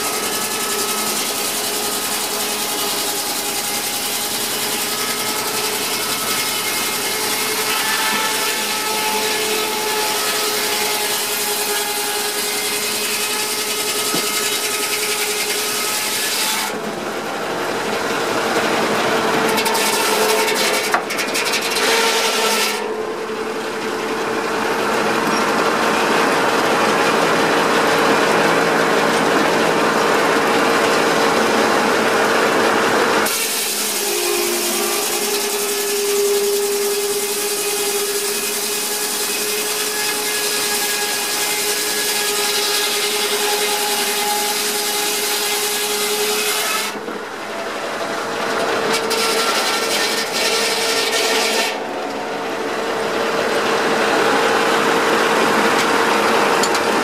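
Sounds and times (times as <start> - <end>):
circular saw ripping through log: 0.0 - 16.8, 18.9 - 22.9, 33.2 - 47.0, 48.5 - 51.9.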